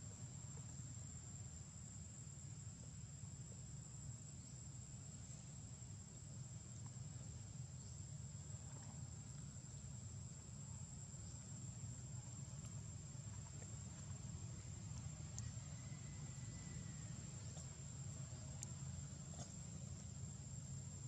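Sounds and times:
faint ticks: 12.1s - 20.3s.

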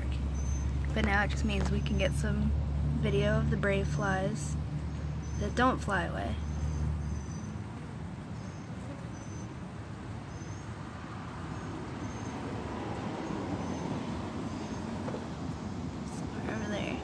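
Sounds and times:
steady background noise: 0.0s - 17.0s.

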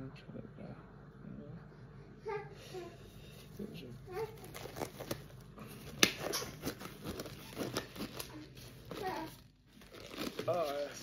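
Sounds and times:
plastic packaging crinkling: 3.5s - 11.0s.

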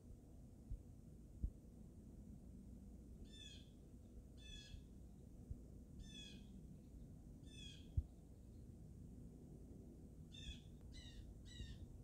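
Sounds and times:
blue jay ringing calls: 3.3s - 3.7s, 4.4s - 4.8s, 6.0s - 6.5s, 7.4s - 7.9s, 10.3s - 11.8s.

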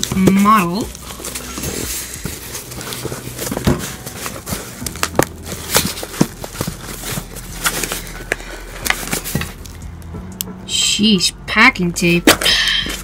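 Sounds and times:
cardboard and tape rustling: 0.0s - 9.9s.

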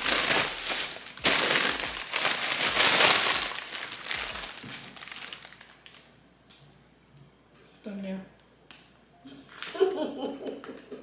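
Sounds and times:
plastic bags crinkling: 0.0s - 6.2s.

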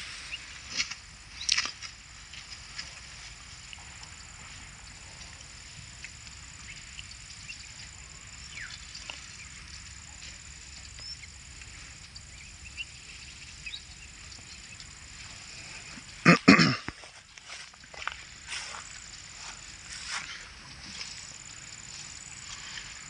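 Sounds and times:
faint low rumble: 0.0s - 23.0s
high-pitched insect drone: 17.0s - 23.0s.

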